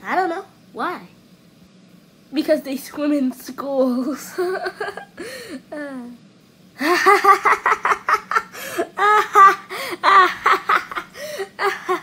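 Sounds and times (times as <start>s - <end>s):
man laughing heartily: 6.8s - 12.0s.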